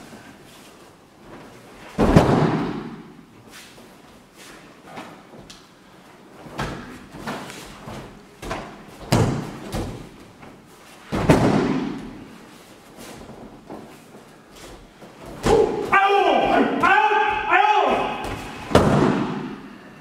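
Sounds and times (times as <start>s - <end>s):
bodies thudding on mats: 1.2s - 3.2s, 6.4s - 17.5s, 18.2s - 19.6s.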